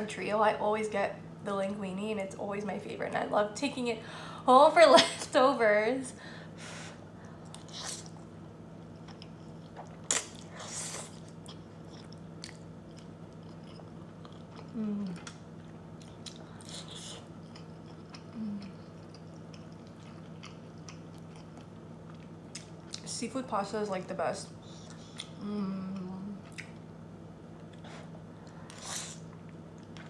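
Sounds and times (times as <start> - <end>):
chewing and lip smacks: 9.0 - 10.5, 11.1 - 23.0, 24.8 - 25.4, 26.4 - 26.8.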